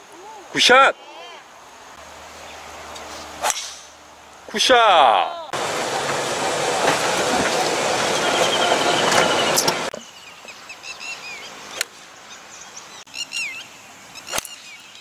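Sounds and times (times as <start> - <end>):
birds chirping: 0.0 - 15.0
loud rushing noise: 5.6 - 9.9.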